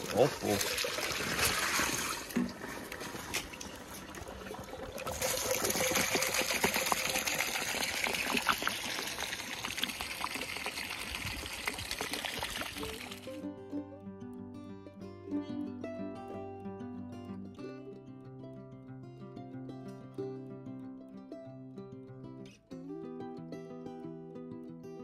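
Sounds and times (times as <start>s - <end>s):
sap pouring and splashing: 0.0s - 13.4s
music: 12.8s - 25.0s.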